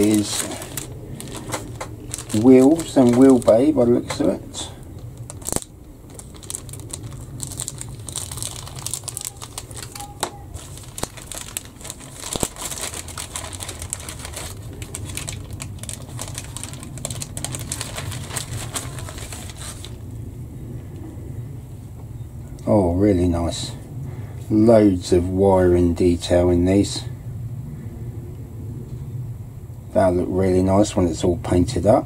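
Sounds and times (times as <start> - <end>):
plastic bag crinkling: 0.0 - 20.0
steady low hum: 0.0 - 32.0.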